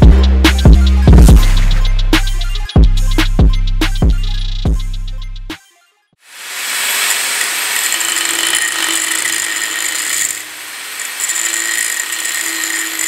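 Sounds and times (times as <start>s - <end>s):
angle grinder grinding steel: 6.3s - 13.0s.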